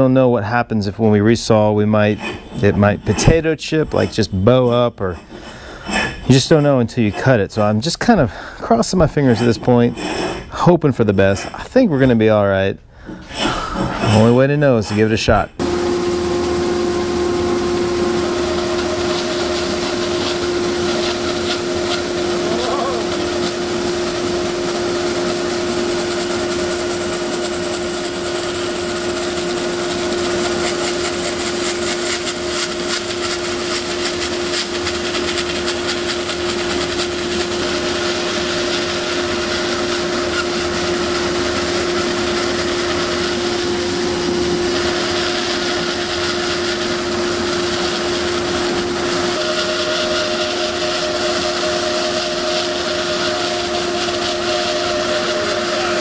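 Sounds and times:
bandsaw cutting wood: 15.6s - 56.0s.

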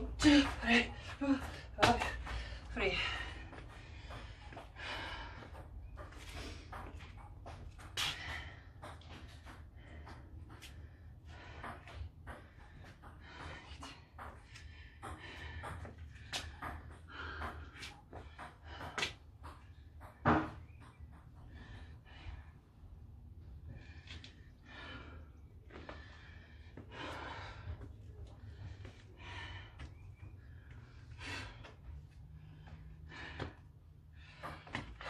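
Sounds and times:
person breathing hard: 0.9s - 19.8s, 20.6s - 35.0s.

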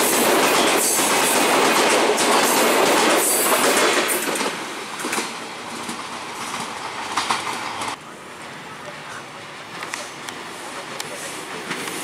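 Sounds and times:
train wheels clattering on rails: 0.0s - 8.0s, 11.0s - 12.0s.

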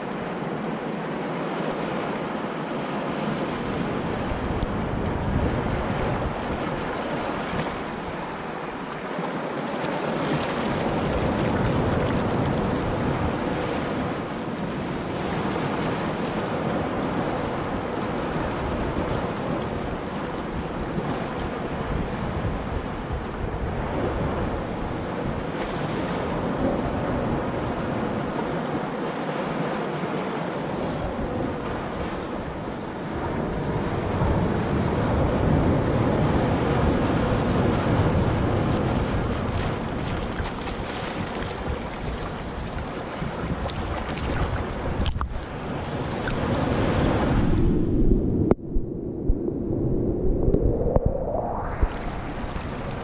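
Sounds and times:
wind buffeting microphone: 3.3s - 8.9s, 10.0s - 29.0s, 30.8s - 53.0s
surf breaking on rocks: 36.4s - 47.6s.

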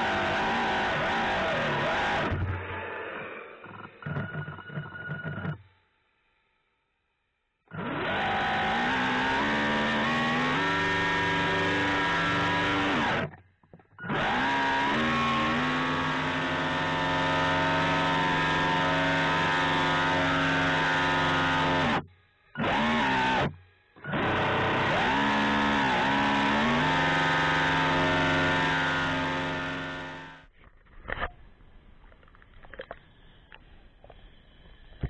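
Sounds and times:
electric motor whining: 0.0s - 2.6s, 7.7s - 13.3s, 14.0s - 30.5s.

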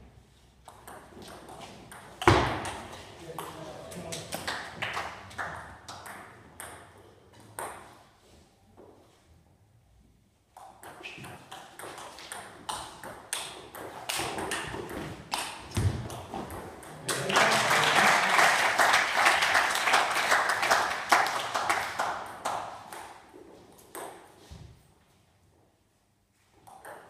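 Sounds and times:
spectators applauding: 17.1s - 22.5s.

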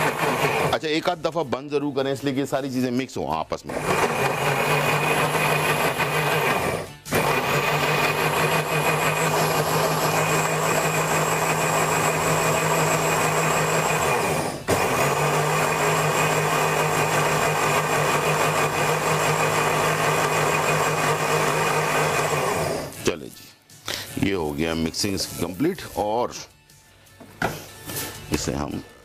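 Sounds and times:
electric blender running: 0.0s - 0.8s, 3.7s - 23.0s.

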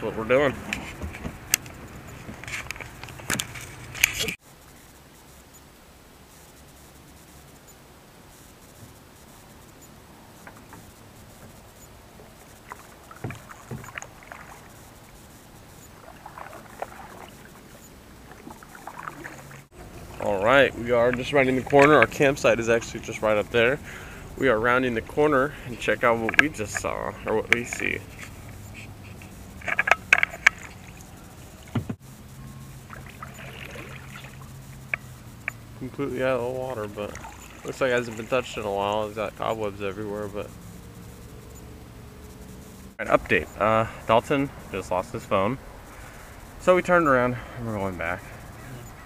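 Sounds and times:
boat motor humming: 0.0s - 49.0s
kayak paddle splashing in water: 10.4s - 32.0s, 32.6s - 39.4s
sharp clicks and knocks: 26.2s - 31.1s, 31.7s - 32.0s
dull knocks: 31.7s - 32.0s.

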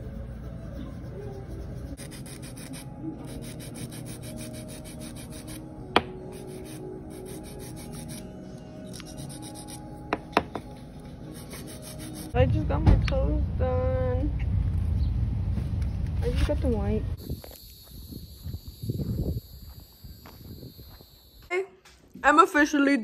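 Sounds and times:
nail file rasping on nails: 0.7s - 5.6s, 6.3s - 8.2s, 8.9s - 9.8s, 11.3s - 12.4s.

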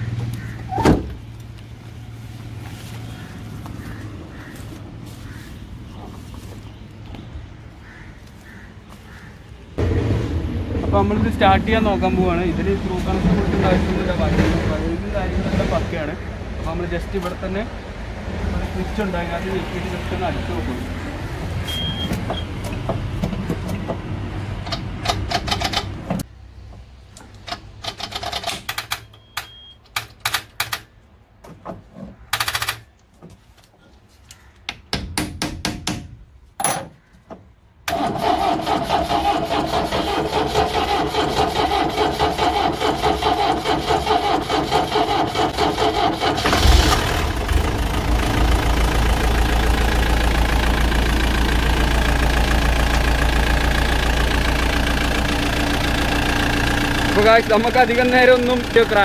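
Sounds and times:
diesel engine running: 37.9s - 59.0s.

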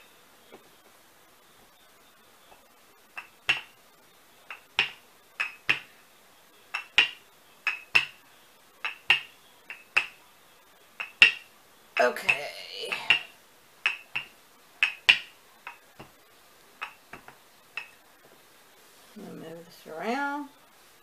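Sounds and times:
rolling pin clacking on table: 3.2s - 3.7s, 4.5s - 5.9s, 6.7s - 8.2s, 8.8s - 10.2s, 11.0s - 11.5s, 12.9s - 16.1s, 16.8s - 18.0s.

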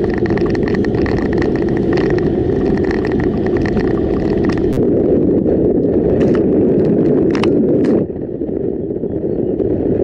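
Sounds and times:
car road and engine rumble: 0.0s - 10.0s.

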